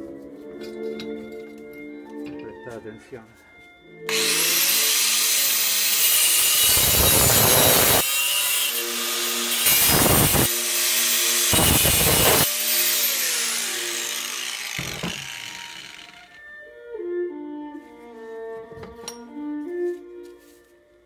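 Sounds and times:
angle grinder whining: 4.1s - 16.5s
grinder cutting steel: 4.1s - 16.5s.

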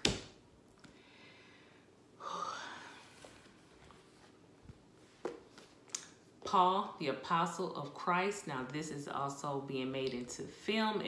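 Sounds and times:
woman sighing: 2.2s - 3.2s.

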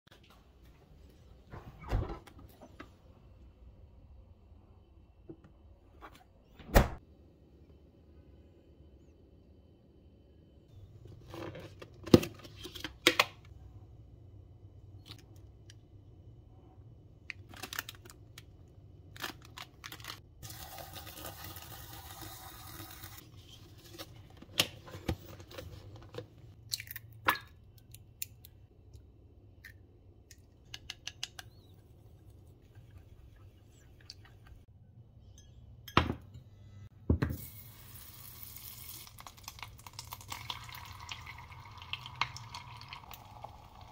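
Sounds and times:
packaging tearing and rustling: 17.5s - 18.4s, 19.1s - 20.2s
butter sizzling in saucepan: 37.4s - 39.6s.

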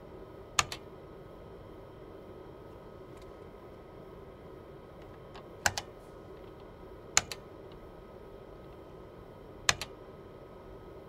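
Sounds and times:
faint steady hum: 0.0s - 11.0s
keyboard keystrokes clacking: 0.6s - 0.8s, 5.4s - 5.9s, 7.2s - 7.4s, 9.7s - 9.9s.

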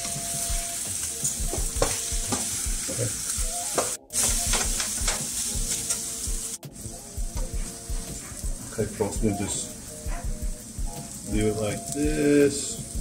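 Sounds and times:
food sizzling in a skillet: 0.0s - 13.0s
spatula scraping and knocking pan: 1.2s - 3.0s.

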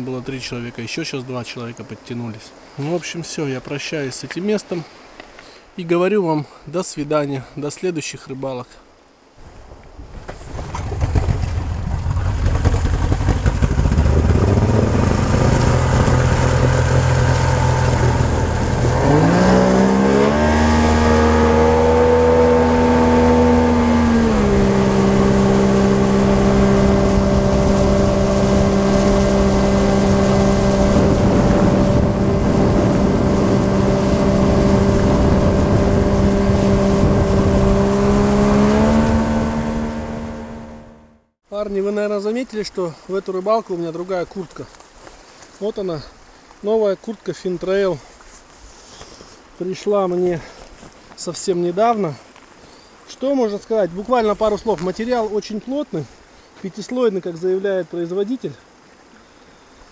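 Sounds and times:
vehicle engine running and revving: 10.8s - 41.2s.

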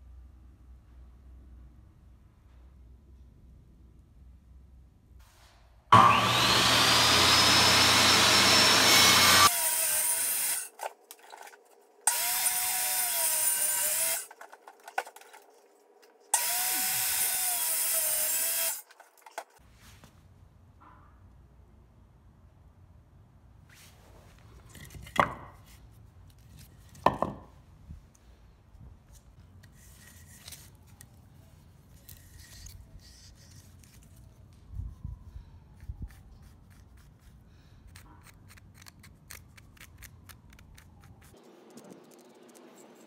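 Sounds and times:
wooden knocks on concrete: 25.2s - 25.6s, 27.0s - 27.5s.

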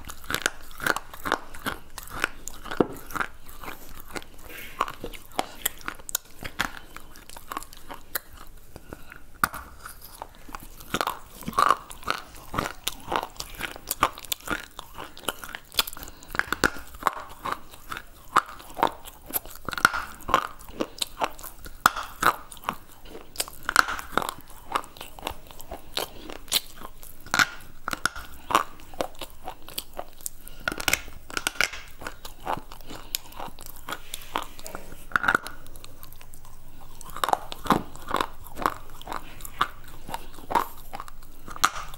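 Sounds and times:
crunching chewing of stone: 0.0s - 41.9s.

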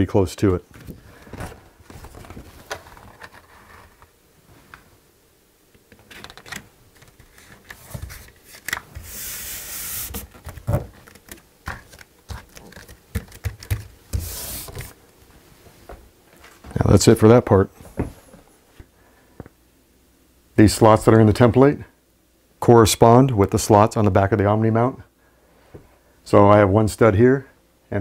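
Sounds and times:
paper rustling and crinkling: 0.8s - 4.1s, 6.0s - 15.0s
rubbing swishes on paper: 7.9s - 10.4s, 14.1s - 15.0s.

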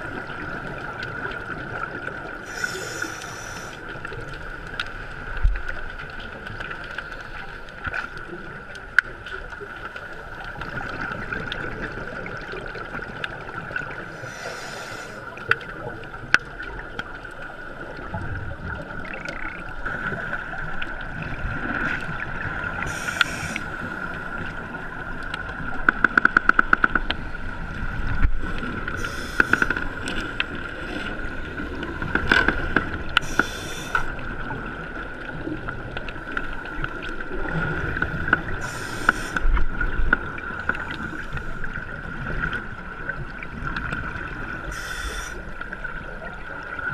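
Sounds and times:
regulator bubbles hissing underwater: 0.0s - 4.0s, 11.7s - 15.9s, 22.3s - 24.8s, 27.2s - 35.0s, 37.4s - 46.4s.

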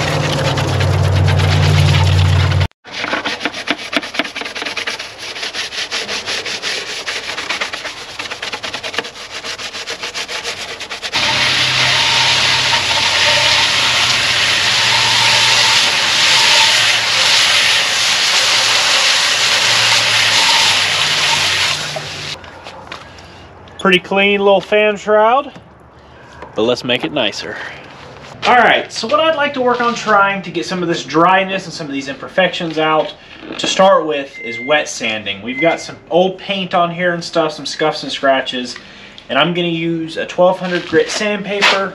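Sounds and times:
hose spray hitting metal: 11.2s - 22.4s.

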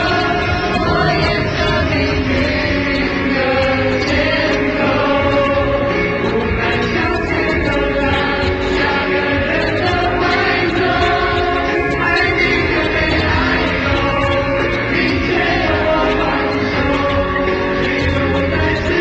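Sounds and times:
distant live pop song: 0.0s - 19.0s.

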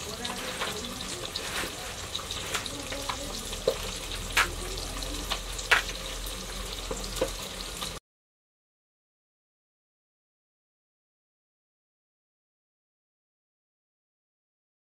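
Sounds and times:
wood fire crackling: 0.0s - 8.0s.

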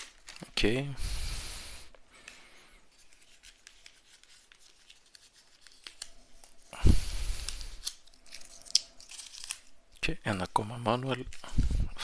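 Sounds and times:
paper leaflet rustling: 0.0s - 0.7s, 2.9s - 6.7s.

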